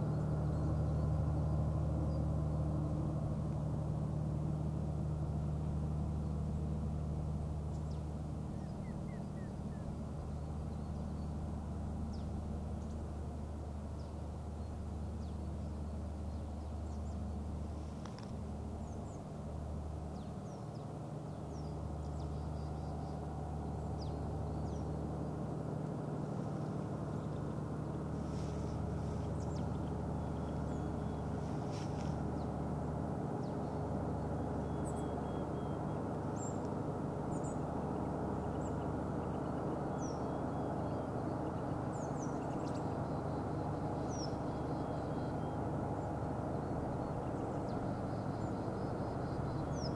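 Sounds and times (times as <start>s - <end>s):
engine humming: 0.0s - 49.9s
small birds chirping: 20.1s - 49.9s.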